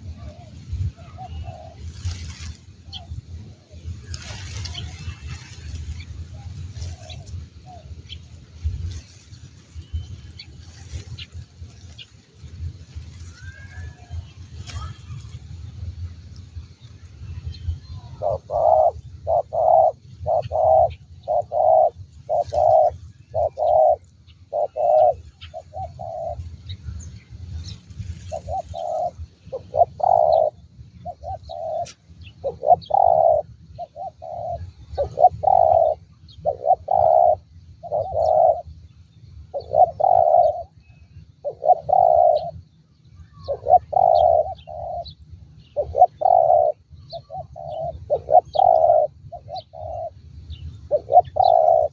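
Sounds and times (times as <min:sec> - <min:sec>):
dove cooing: 0:00.0 - 0:08.1, 0:17.9 - 0:26.4, 0:28.2 - 0:38.7, 0:39.5 - 0:40.8, 0:41.4 - 0:42.6, 0:43.3 - 0:45.2, 0:45.8 - 0:50.2, 0:50.9 - 0:51.9
steady low rumble: 0:00.0 - 0:51.9.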